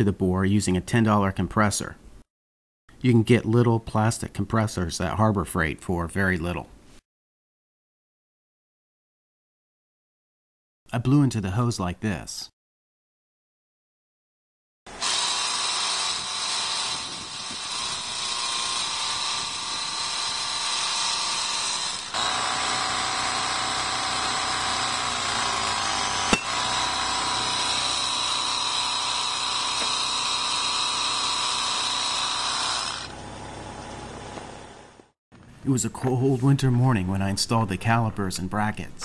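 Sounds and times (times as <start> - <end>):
air compressor whining: 14.9 - 35.0
sharp click: 26.3 - 26.5.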